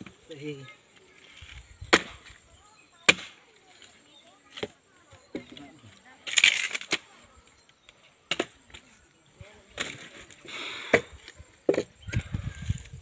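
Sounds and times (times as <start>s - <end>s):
axe chopping wood: 1.9s - 2.3s, 3.0s - 3.4s.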